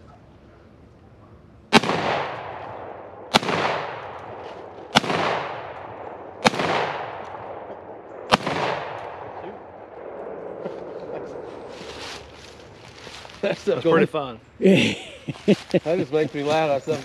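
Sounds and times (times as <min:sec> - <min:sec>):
shotgun shots: 0:01.7 - 0:10.6.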